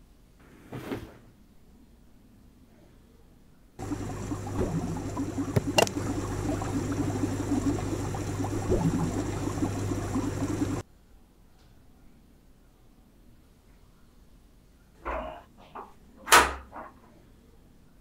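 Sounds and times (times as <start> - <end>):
air pump humming: 3.8 - 10.8
aquarium bubbler gurgling: 3.8 - 10.8.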